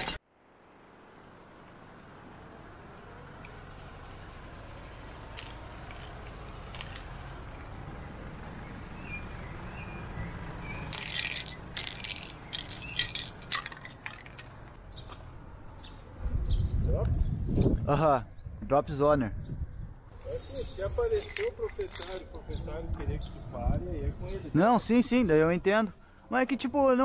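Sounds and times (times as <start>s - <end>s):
spray can ball rattling: 3.4s - 7.6s, 10.9s - 14.6s, 20.4s - 22.2s.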